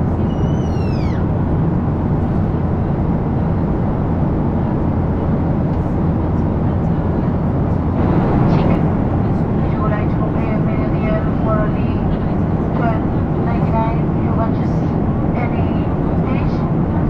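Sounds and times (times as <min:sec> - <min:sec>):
airliner cabin engine rush: 0:00.0 - 0:17.0
whistle-like tone sliding down: 0:00.2 - 0:01.2.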